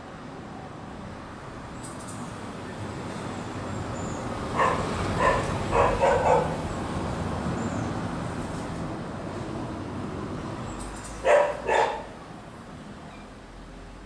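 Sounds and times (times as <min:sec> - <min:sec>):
traffic hum: 0:00.0 - 0:14.0
dog barking: 0:04.5 - 0:06.6, 0:11.2 - 0:12.2.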